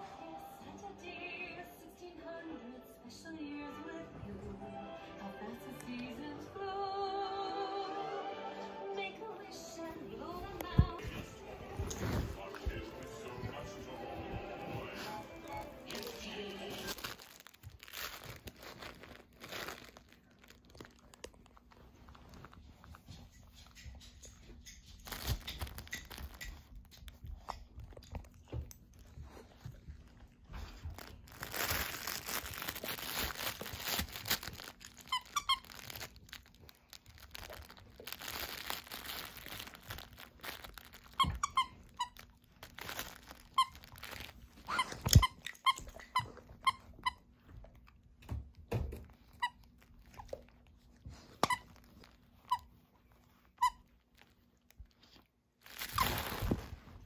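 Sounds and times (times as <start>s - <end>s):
dog chewing and rustling: 9.5s - 57.0s
squeaky dog toy squeaking: 31.4s - 47.3s, 51.4s - 52.8s.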